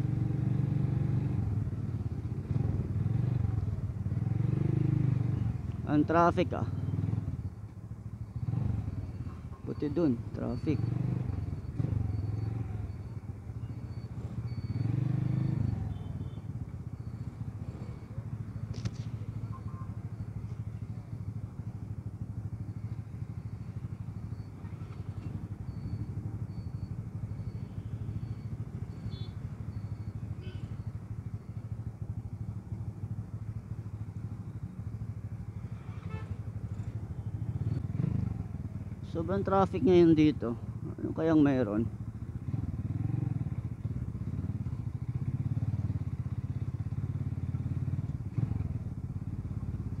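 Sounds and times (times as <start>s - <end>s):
motorcycle engine idling: 15.7s - 50.0s.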